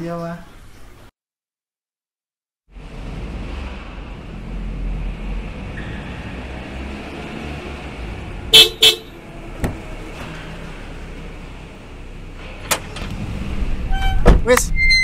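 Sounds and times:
car engine idling: 0:08.0 - 0:13.2
car horn toots: 0:08.5 - 0:09.2.

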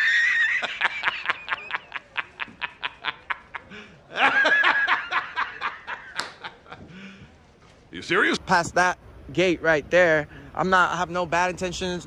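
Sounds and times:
man laughing: 0:00.0 - 0:07.0.

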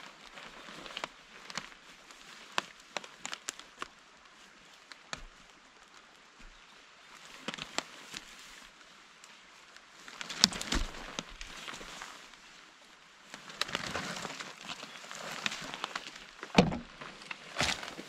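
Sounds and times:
plastic rustling: 0:10.0 - 0:12.4, 0:13.4 - 0:18.0.

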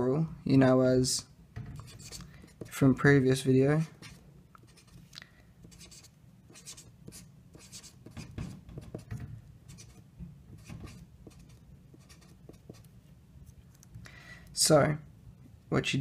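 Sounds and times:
marker scratching on paper: 0:01.8 - 0:02.8, 0:03.9 - 0:05.0, 0:05.6 - 0:12.9.

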